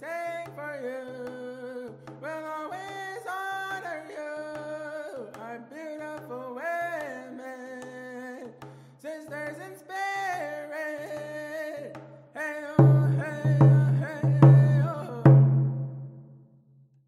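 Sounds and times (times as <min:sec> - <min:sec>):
person singing long notes: 0:12.7 - 0:15.7
low drum: 0:12.8 - 0:16.3.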